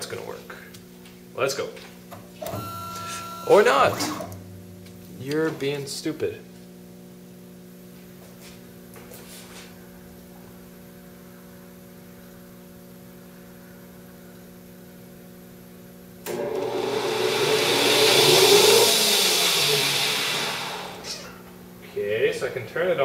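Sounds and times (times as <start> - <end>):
steady low hum: 0.0 - 16.3, 20.6 - 23.0
lathe motor whirring: 16.2 - 21.3.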